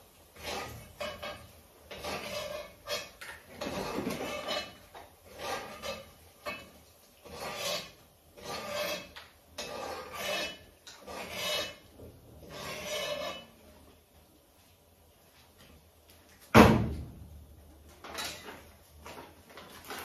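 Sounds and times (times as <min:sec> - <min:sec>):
metal utensil scraping pot: 0:00.3 - 0:13.7.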